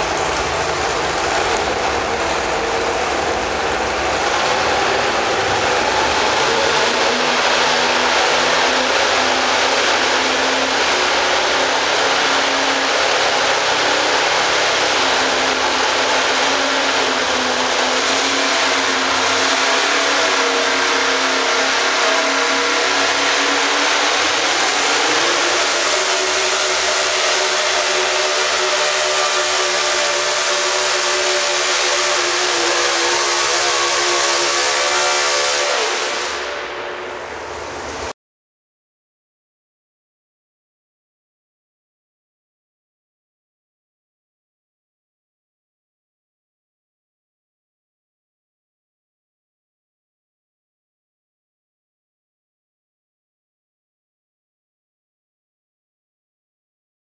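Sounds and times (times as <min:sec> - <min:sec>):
tractor engine revving hard: 0:00.0 - 0:36.4.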